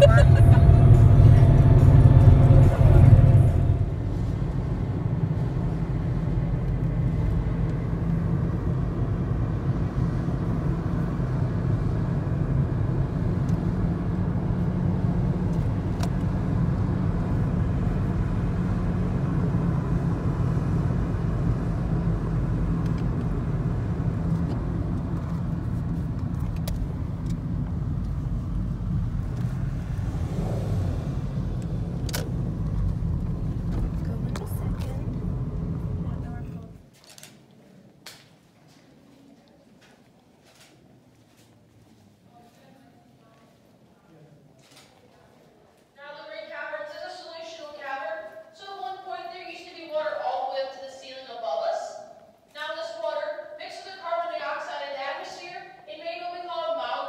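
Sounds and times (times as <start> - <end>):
car engine and tyres rumbling: 0.0 - 36.9.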